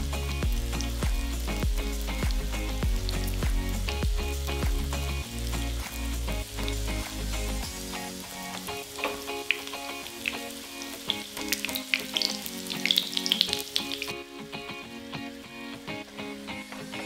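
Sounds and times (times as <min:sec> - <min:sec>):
dough frying in oil: 0:05.3 - 0:14.1.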